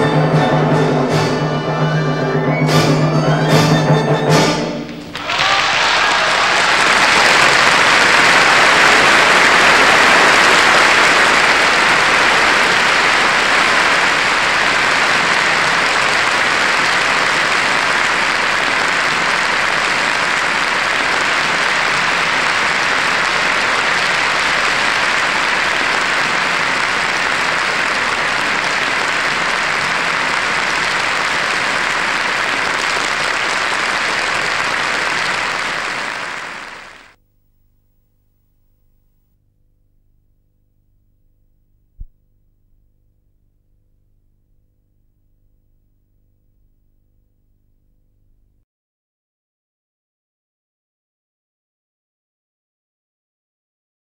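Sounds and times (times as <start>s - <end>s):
audience applause: 5.0s - 37.2s.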